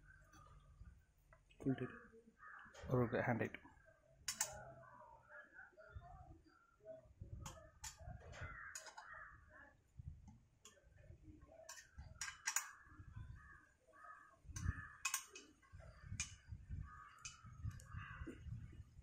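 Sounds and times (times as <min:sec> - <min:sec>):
sharp clicks and knocks of parts: 0:04.2 - 0:04.6, 0:07.5 - 0:09.2, 0:11.7 - 0:12.8, 0:14.6 - 0:15.6.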